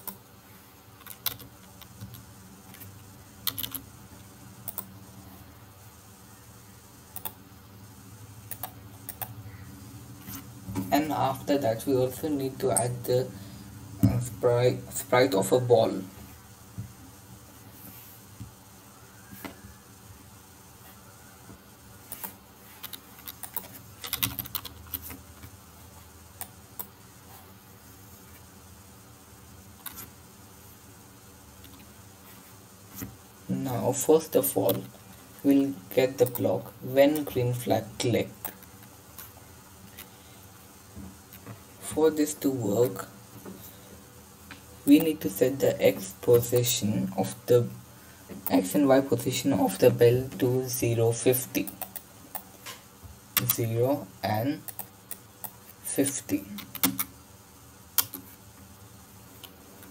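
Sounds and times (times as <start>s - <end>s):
faint low hum: 0.0s - 59.9s
computer mouse clicks: 1.0s - 2.2s, 3.4s - 3.8s, 4.6s - 4.9s, 7.1s - 7.4s, 8.5s - 9.4s
mouse clicks: 7.1s - 7.4s.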